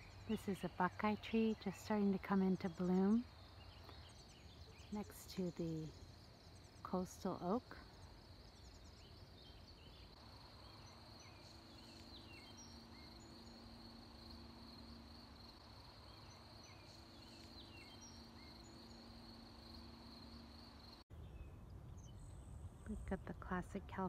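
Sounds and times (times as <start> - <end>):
bird chirps: 0.0 - 15.1, 16.0 - 22.5
crickets trilling: 0.0 - 21.0.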